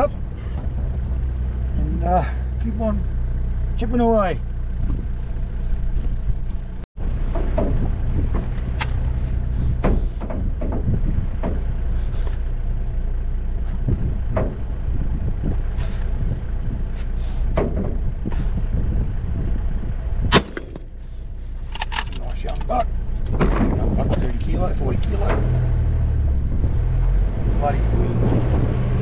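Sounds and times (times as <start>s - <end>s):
off-road vehicle engine: 0.0s - 29.0s
vehicle knocks and rattles: 4.5s - 12.7s, 13.6s - 19.6s, 21.6s - 26.8s
sharp loud click: 20.3s - 20.9s.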